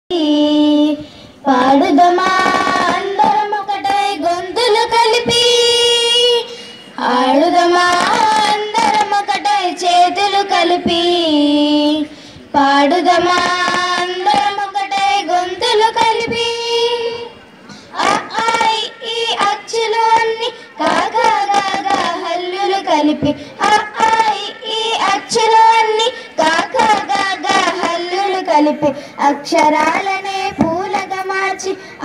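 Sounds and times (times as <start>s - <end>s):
girls singing together: 0.1s - 32.0s.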